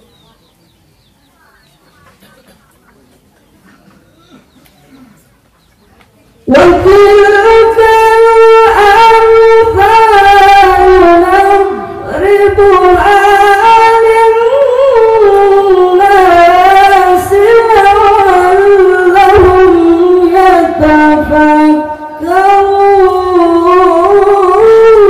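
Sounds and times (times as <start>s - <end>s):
man reciting melodically: 6.5s - 25.0s.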